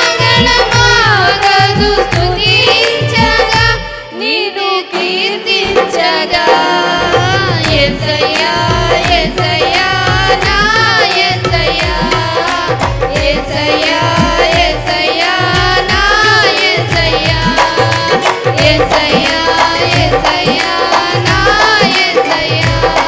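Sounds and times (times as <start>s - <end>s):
hand drum rhythm: 0.0s - 3.9s, 5.0s - 23.0s.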